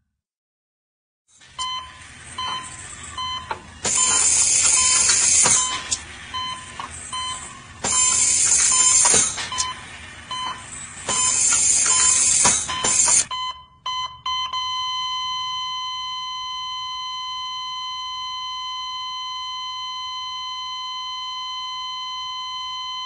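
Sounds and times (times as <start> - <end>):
heart monitor beeping: 1.5 - 23.0
bursts of hissing noise: 2.0 - 13.3.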